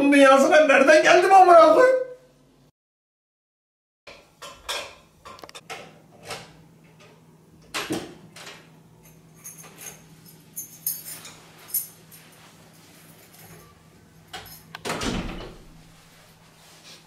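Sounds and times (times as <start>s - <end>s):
keys jangling: 9.0s - 13.8s, 14.4s - 14.8s.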